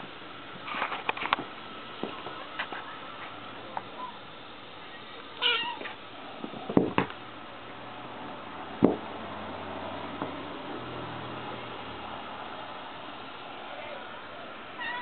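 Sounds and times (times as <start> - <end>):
kitten meowing: 5.4 - 5.9, 14.8 - 15.0.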